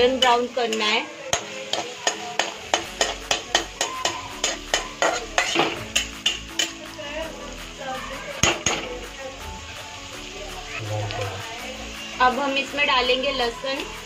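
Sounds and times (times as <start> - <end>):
onions frying in oil: 0.0 - 14.0
metal spatula scraping a pan: 0.2 - 6.8.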